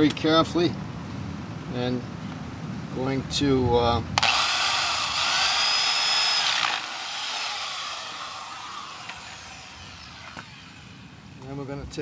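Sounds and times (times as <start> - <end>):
drill motor winding down: 4.2 - 11.2.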